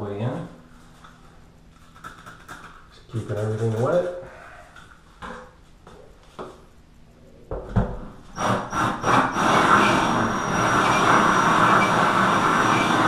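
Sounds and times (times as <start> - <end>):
drill grinding into tile: 8.3 - 13.0.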